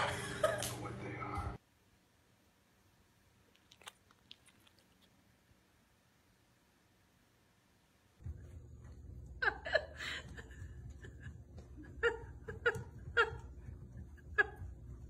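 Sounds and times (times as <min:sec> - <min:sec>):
low room hum: 0:00.0 - 0:15.0
person laughing: 0:09.3 - 0:15.0.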